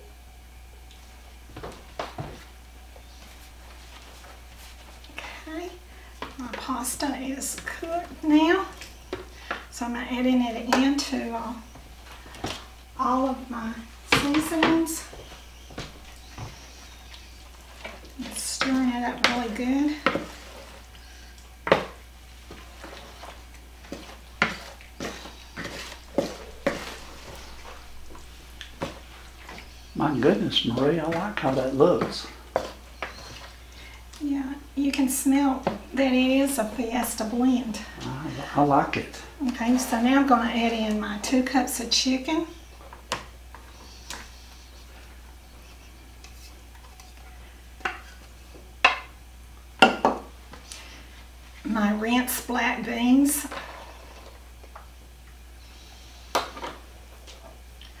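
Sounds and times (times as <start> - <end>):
wooden spoon scraping plastic container: 22.6 - 28.0.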